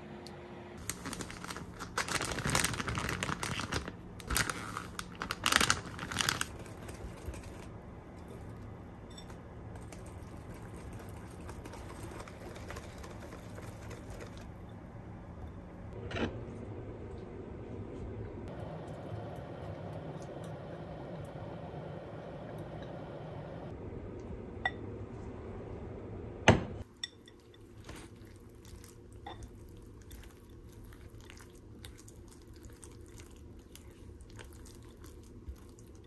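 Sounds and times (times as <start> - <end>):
plastic bag crinkling: 0.8 - 7.7.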